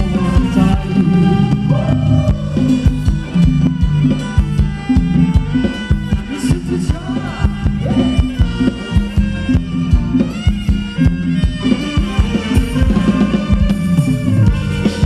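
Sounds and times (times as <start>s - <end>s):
live band dance music: 0.0s - 15.0s
steady drum beat: 0.0s - 15.0s.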